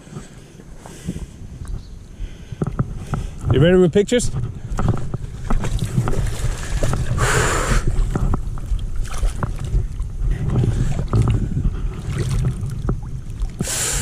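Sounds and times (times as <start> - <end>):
wind on microphone: 0.0 - 14.0
water splashing and sloshing: 4.2 - 14.0.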